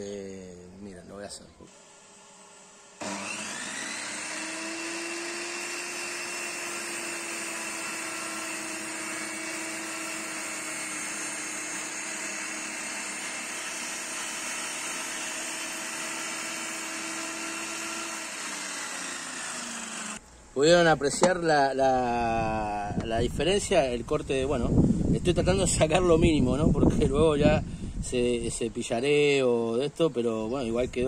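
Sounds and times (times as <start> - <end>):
table saw whining: 1.7 - 20.2
saw blade ripping wood: 3.0 - 20.2.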